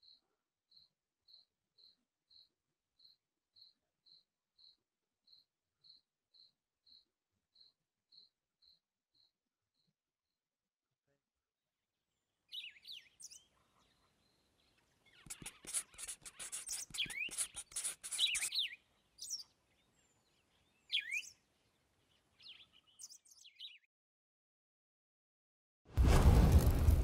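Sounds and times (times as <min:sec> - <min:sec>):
small birds chirping: 0:00.0 - 0:10.0, 0:12.4 - 0:23.9.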